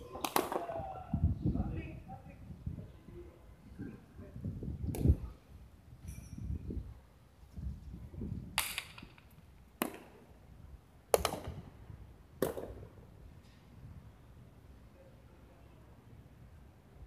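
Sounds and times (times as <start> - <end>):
ball cracking against walls: 0.2 - 0.8.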